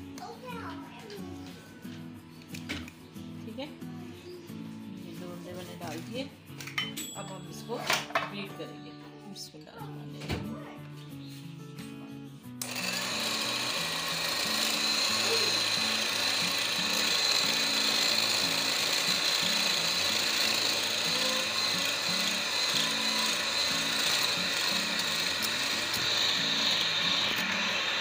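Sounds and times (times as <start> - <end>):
electric hand mixer whining: 12.6 - 28.0.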